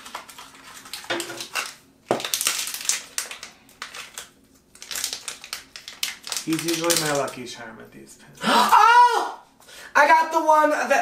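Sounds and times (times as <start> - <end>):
foil bag crinkling and tearing: 0.0 - 7.6.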